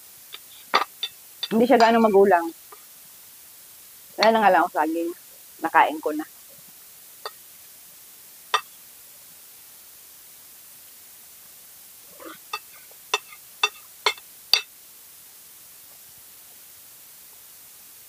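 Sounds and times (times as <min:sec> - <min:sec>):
faint steady hiss: 0:00.0 - 0:18.0
cutlery clinking on a plate: 0:12.5 - 0:14.7.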